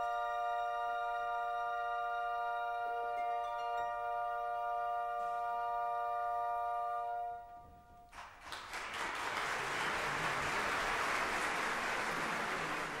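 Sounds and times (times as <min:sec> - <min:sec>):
operatic music chord: 0:00.0 - 0:07.8
audience applauding: 0:08.1 - 0:13.0.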